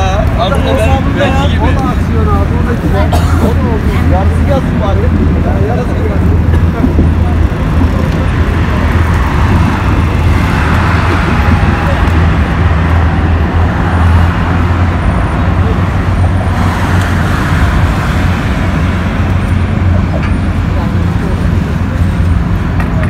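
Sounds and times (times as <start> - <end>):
road traffic passing: 0.0 - 23.0.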